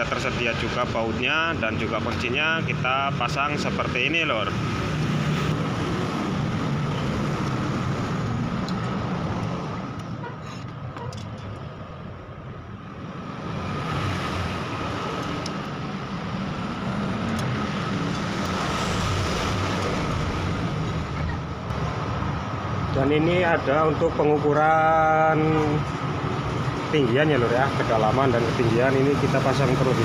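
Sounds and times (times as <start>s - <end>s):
road traffic: 0.0s - 30.0s.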